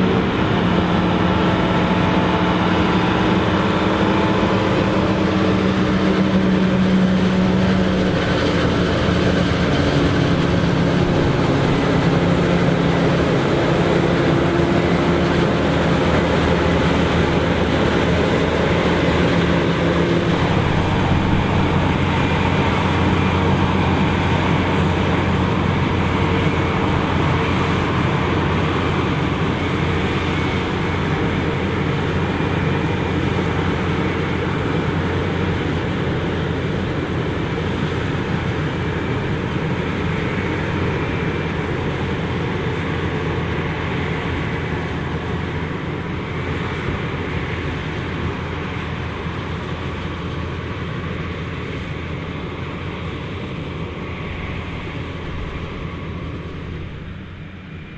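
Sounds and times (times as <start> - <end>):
cutterhead and blower rushing: 0.0 - 42.6
harvester engine drone: 0.0 - 57.9.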